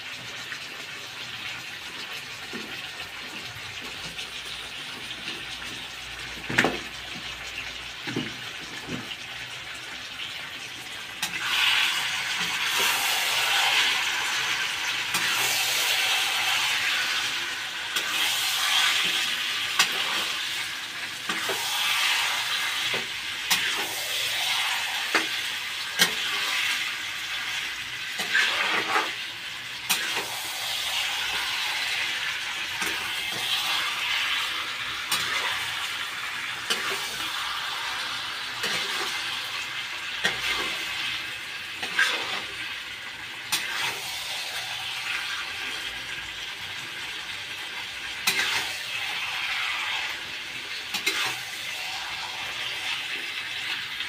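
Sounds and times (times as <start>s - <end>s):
food sizzling in a pan: 0.0s - 54.0s
metal spatula scraping pan: 28.2s - 29.2s, 32.8s - 35.8s, 36.6s - 37.4s, 38.6s - 39.3s, 40.2s - 41.0s, 41.8s - 42.6s, 48.2s - 50.2s, 50.9s - 52.9s.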